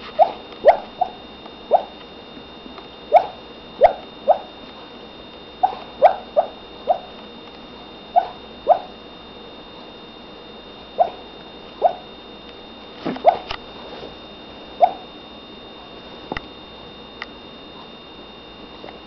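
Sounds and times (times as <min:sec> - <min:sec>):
dog barking: 0:00.2 - 0:01.9, 0:03.1 - 0:04.5, 0:05.6 - 0:07.1, 0:08.2 - 0:09.0, 0:11.0 - 0:11.2, 0:13.2 - 0:13.5, 0:14.8 - 0:15.0.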